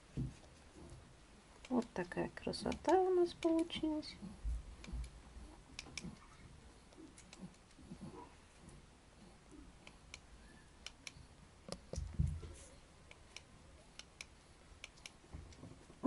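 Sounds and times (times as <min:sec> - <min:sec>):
soft low thump: 0:00.1 - 0:00.4, 0:11.9 - 0:12.6
puppies suckling clicks and smacks: 0:02.6 - 0:08.1.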